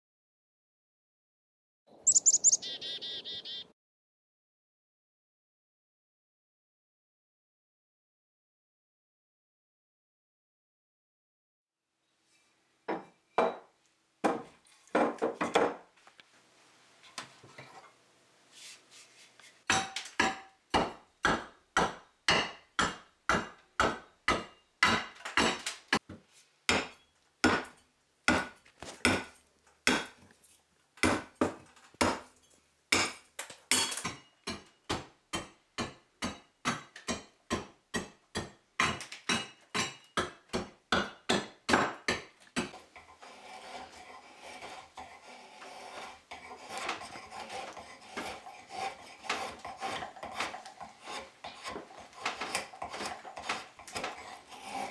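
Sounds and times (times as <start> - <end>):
hatchet chopping wood: 19.7 - 26.1, 26.7 - 30.2, 31.0 - 32.3, 32.9 - 42.8, 46.8 - 54.8
scraping wood by hand: 42.8 - 54.9.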